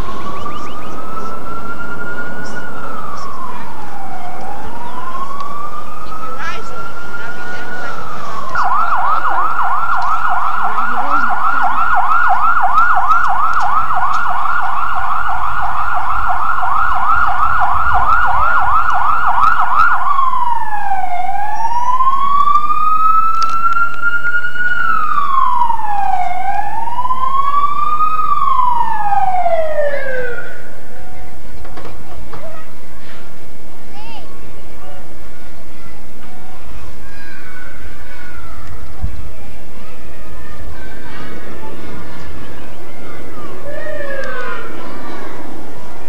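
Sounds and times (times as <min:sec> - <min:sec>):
siren yelping and wailing: 0:00.0 - 0:30.8, 0:43.5 - 0:44.9.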